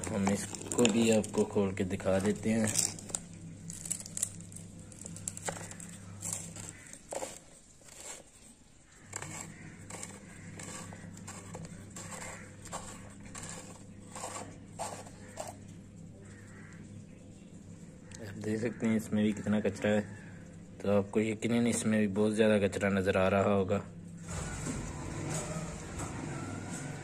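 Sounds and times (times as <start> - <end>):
plastic scraping and clicking: 0.0 - 15.7
low steady hum: 0.0 - 27.0.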